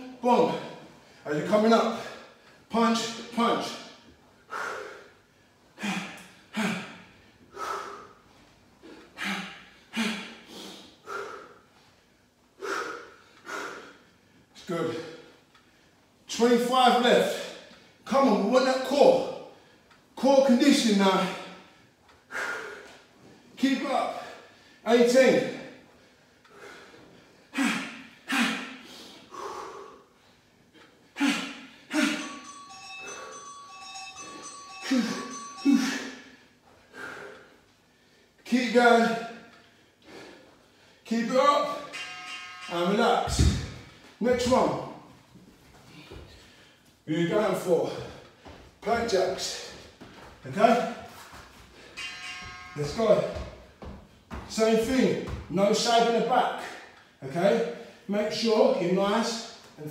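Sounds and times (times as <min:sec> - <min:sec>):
man exhaling and grunting: 0:05.8 - 0:08.1, 0:08.9 - 0:11.5, 0:27.5 - 0:30.0.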